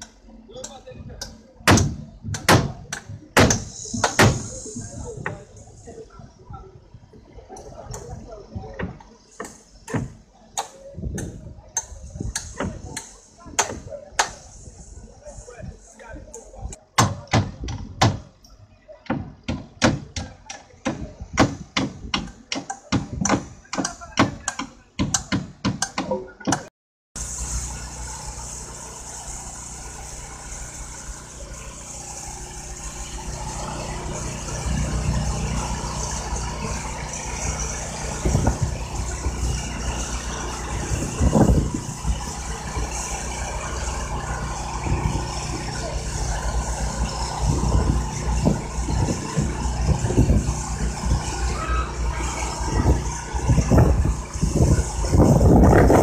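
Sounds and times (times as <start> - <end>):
truck engine running: 0.0 - 26.4, 27.2 - 56.0
rattling and knocks of crane: 8.0 - 11.4, 33.4 - 51.6.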